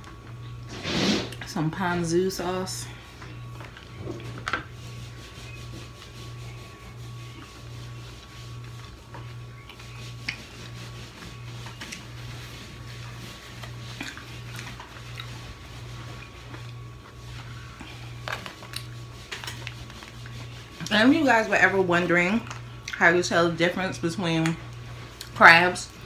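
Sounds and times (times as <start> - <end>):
low pulsing hum: 0.0 - 26.0
paper towel rubbing hands: 3.9 - 22.4.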